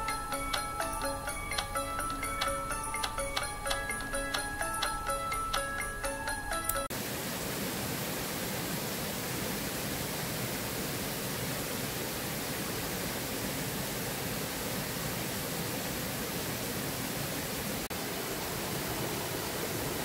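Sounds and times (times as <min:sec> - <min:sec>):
chiming music jingle: 0:00.0 - 0:06.9.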